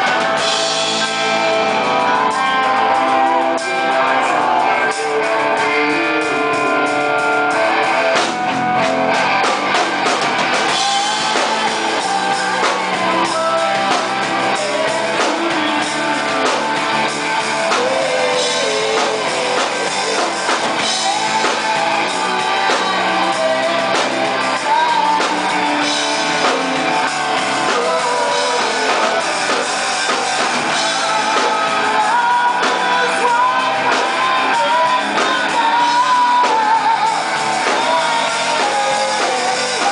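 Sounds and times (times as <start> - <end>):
man singing into a microphone: 0.0 - 8.8, 10.6 - 39.9
rock band playing: 0.0 - 39.9.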